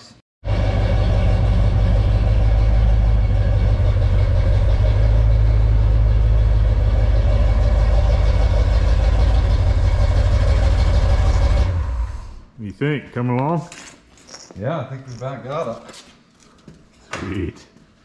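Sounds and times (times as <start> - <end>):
truck engine idling: 0.4 - 12.4.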